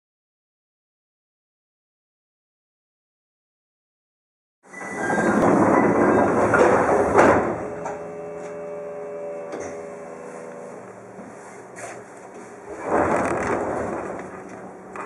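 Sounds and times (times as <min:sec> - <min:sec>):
pneumatic train doors closing: 0:04.7 - 0:14.8
train equipment humming: 0:04.7 - 0:15.0.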